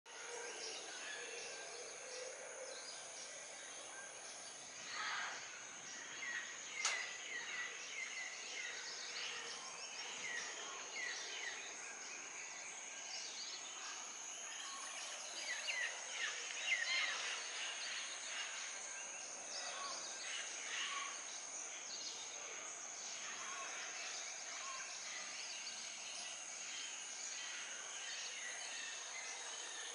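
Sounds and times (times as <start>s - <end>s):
sharp click: 6.8s - 7.1s.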